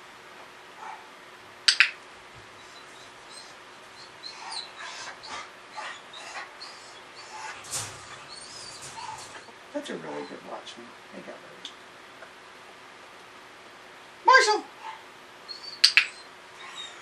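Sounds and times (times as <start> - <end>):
sharp double click: 1.7 - 2.0, 15.8 - 16.2
dog whimpering: 2.5 - 10.6, 14.8 - 17.0.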